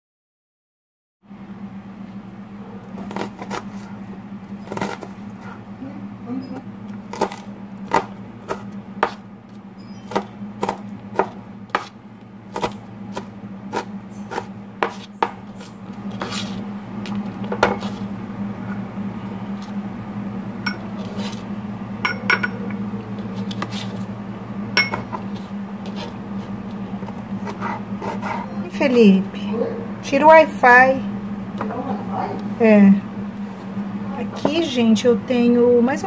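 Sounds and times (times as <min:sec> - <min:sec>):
steady low hum: 0:01.2 - 0:36.0
knife chopping on plastic board: 0:07.1 - 0:09.2, 0:10.1 - 0:11.9, 0:12.5 - 0:16.6
knife scraping across board: 0:11.7 - 0:11.9, 0:12.6 - 0:16.6, 0:17.6 - 0:18.1, 0:25.1 - 0:28.5.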